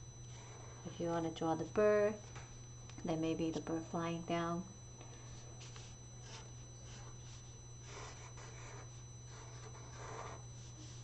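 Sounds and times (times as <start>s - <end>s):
marker scratching on paper: 5.6s - 11.0s.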